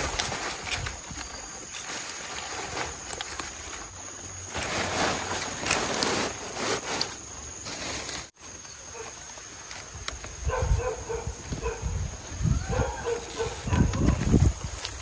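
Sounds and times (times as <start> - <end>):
leaves rustling and crackling: 0.0 - 15.0.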